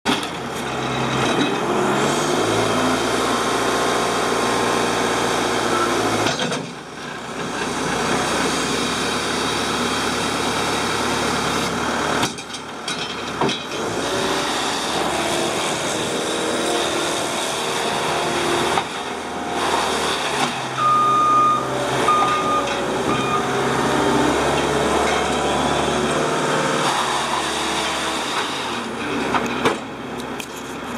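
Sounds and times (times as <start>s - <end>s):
loader diesel engine running hard: 0.1s - 30.9s
backup alarm beeping: 20.8s - 23.5s.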